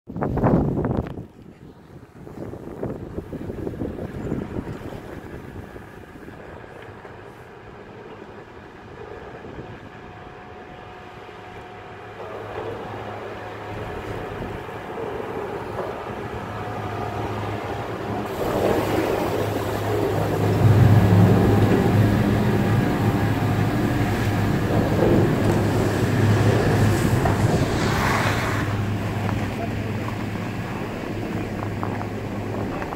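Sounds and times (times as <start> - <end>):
wind on the microphone: 0.1 - 11.0, 12.2 - 32.9
chairlift machinery humming: 2.2 - 32.9
skis sliding on snow: 18.3 - 20.9, 24.2 - 30.8.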